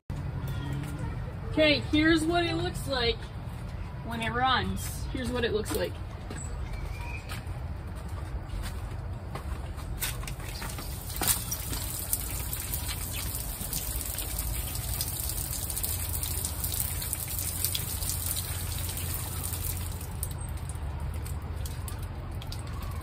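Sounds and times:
water trickling and dripping: 10.3 - 23.0.

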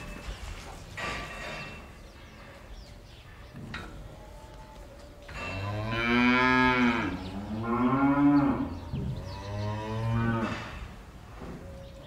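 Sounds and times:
cow mooing: 5.5 - 10.8.

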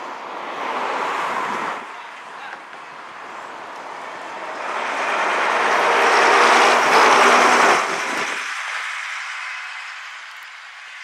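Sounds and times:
bus engine driving past: 2.6 - 11.0.

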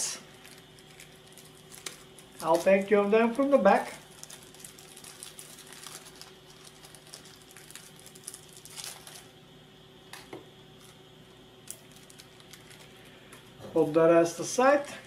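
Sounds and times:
plastic bag rustling: 0.1 - 9.4, 11.7 - 14.0.

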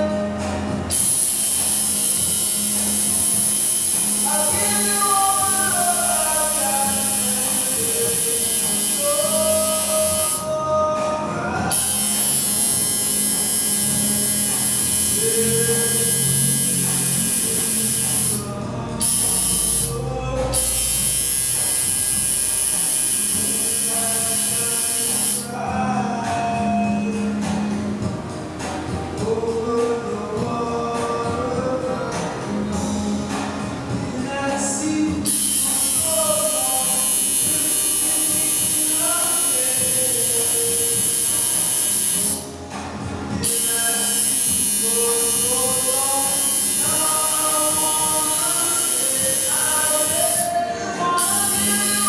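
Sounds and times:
person singing: 0.0 - 42.5, 43.2 - 52.0
background music: 0.0 - 52.0
tattoo machine buzzing: 0.8 - 10.5, 11.6 - 25.5, 35.2 - 42.5, 43.4 - 52.0.

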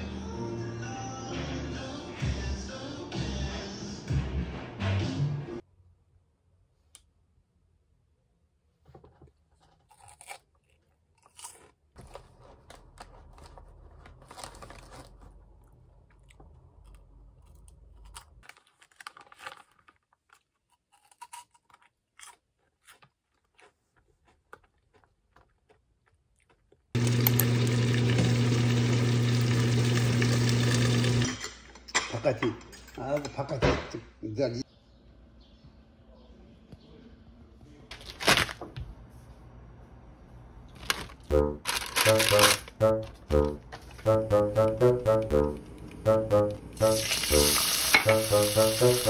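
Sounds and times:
crunching and chewing snack: 9.5 - 27.0, 40.8 - 43.6
plastic snack bag crinkling: 9.6 - 25.8, 37.9 - 38.6, 40.8 - 42.9.

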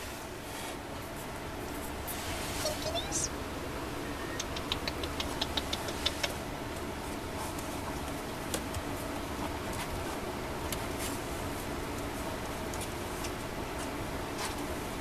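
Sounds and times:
steady low hum: 0.0 - 15.0
kittens clicking and scratching: 4.4 - 14.7.

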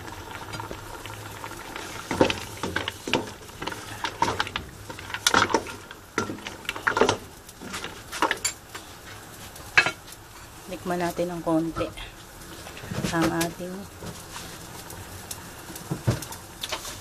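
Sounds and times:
sauce boiling: 0.0 - 17.0.

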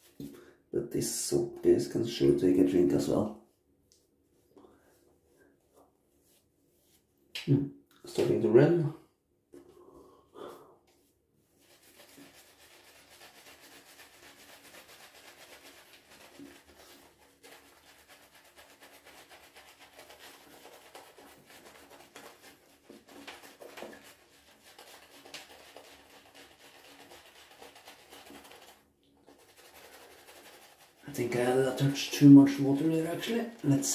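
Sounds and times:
shaving brush scrubbing stubble: 10.9 - 33.9.

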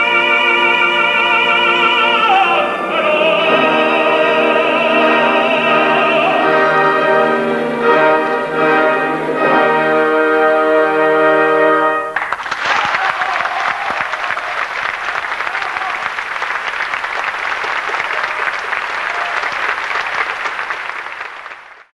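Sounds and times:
audience applauding: 12.1 - 21.9.

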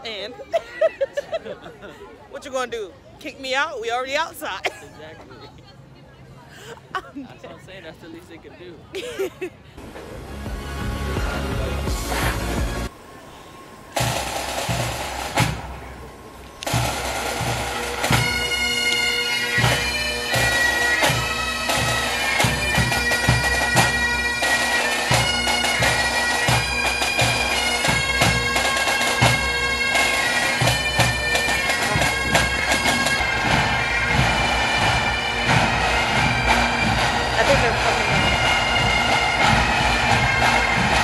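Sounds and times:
drum beat: 10.4 - 12.9, 30.6 - 41.0
bagpipes playing: 13.7 - 41.0.

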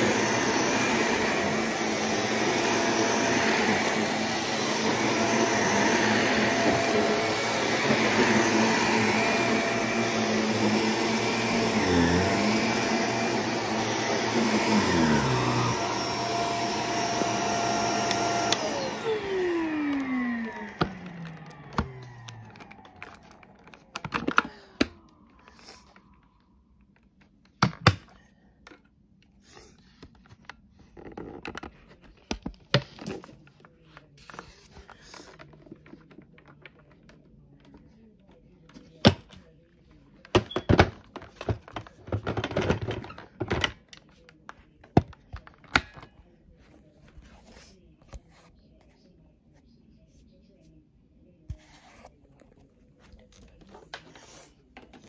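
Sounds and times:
vacuum cleaner running: 0.0 - 26.2.

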